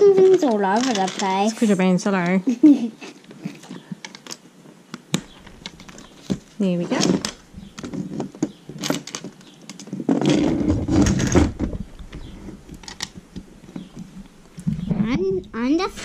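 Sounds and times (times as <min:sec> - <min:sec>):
plastic bricks clicking and clattering: 0:00.2 - 0:01.6.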